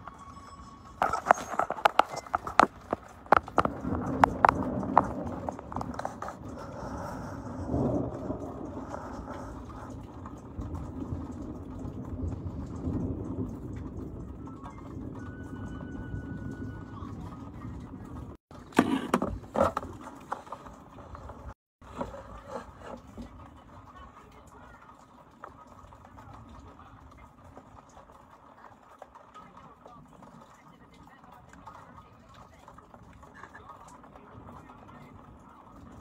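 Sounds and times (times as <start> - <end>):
distant thunder rumbling: 1.0 - 18.4.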